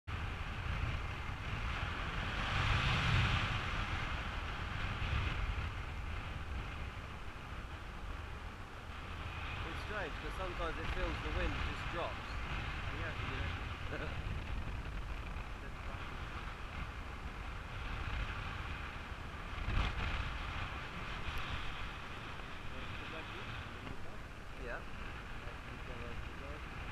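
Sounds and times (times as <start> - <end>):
wind rushing over microphone: 0.1 - 26.9.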